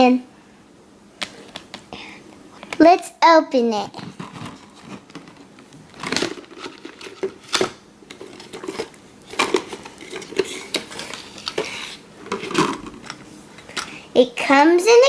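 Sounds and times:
plastic packaging rustling and clacking: 4.0s - 14.0s.

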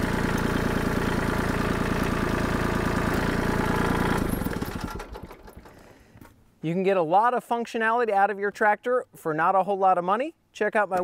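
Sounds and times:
tractor diesel engine running: 0.0s - 6.2s.

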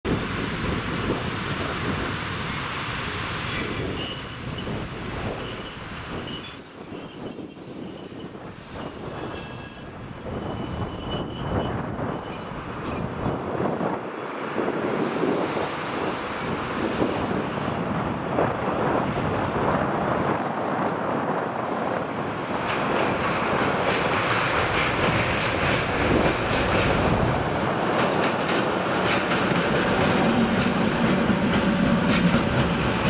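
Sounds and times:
railway wheels squealing: 0.1s - 14.1s, 14.9s - 18.0s.

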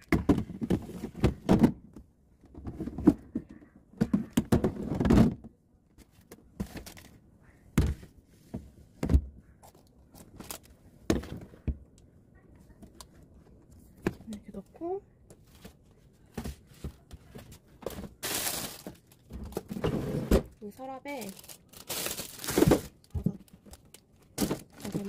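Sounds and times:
plastic containers knocking on shelves: 0.0s - 5.5s, 24.3s - 25.0s.

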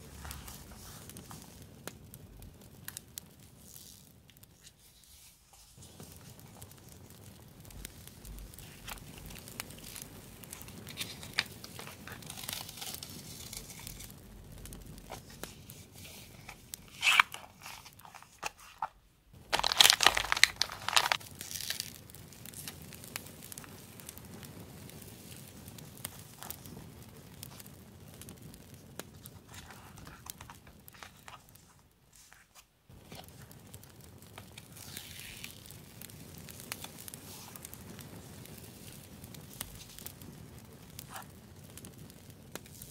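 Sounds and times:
paper rustling and crinkling: 0.0s - 1.6s, 3.7s - 7.1s, 7.7s - 14.2s, 15.0s - 21.9s, 29.2s - 33.6s
sharp paper crackle: 0.0s - 2.0s, 3.6s - 24.3s, 29.0s - 41.3s.

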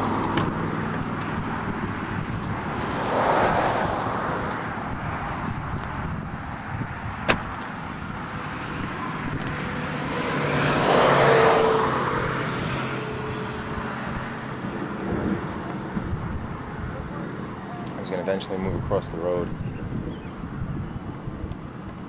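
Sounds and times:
car passing by: 2.7s - 4.8s, 8.6s - 15.9s.

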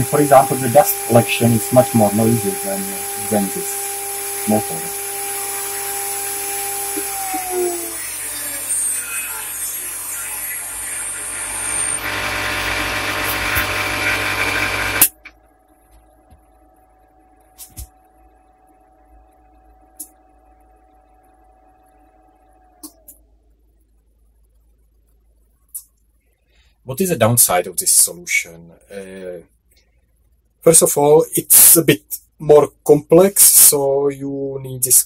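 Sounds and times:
spindle motor whine winding down: 0.0s - 23.2s
faint hum: 0.0s - 35.0s.

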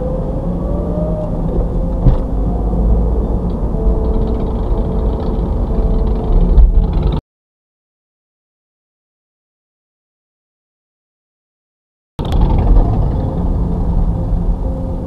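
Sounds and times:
car engine from inside cabin: 0.0s - 7.2s, 12.2s - 15.0s.

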